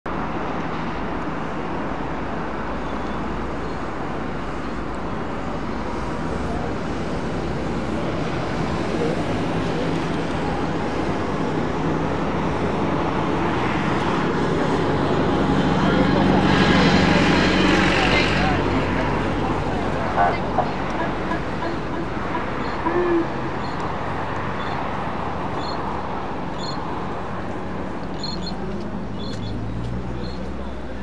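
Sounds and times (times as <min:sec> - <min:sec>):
traffic noise: 0:00.1 - 0:31.0
murmur of voices: 0:14.4 - 0:23.9.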